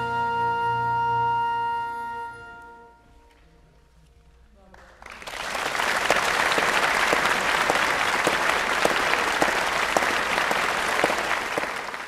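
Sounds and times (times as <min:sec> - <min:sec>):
audience applauding: 0:04.7 - 0:12.0.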